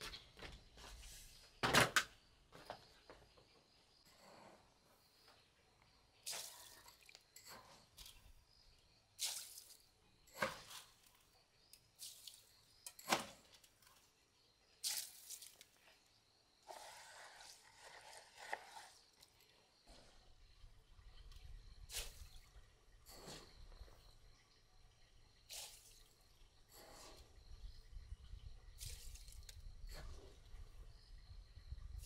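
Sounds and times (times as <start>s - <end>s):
stirring in water: 16.6s - 20.3s.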